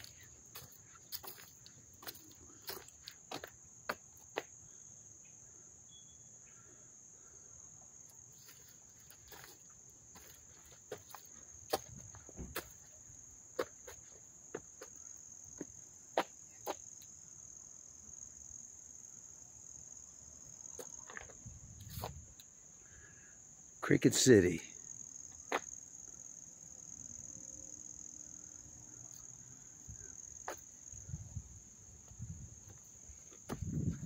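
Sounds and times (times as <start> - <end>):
footsteps on stone: 0.0 - 4.5, 8.4 - 13.0, 32.0 - 34.0
crickets chirping: 0.0 - 34.0.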